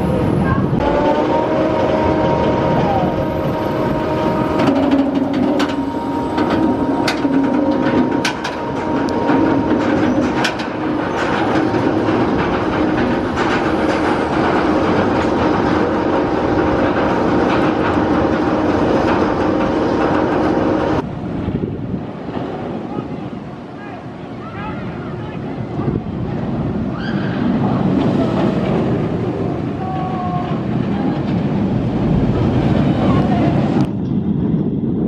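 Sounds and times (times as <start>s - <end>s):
chain lift mechanical hum: 0.8s - 21.0s.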